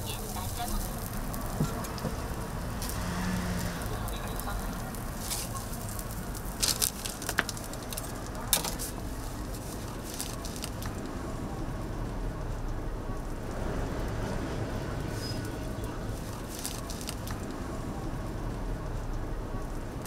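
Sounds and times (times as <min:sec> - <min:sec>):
sandwich sizzling on a griddle: 0:00.0 - 0:11.1.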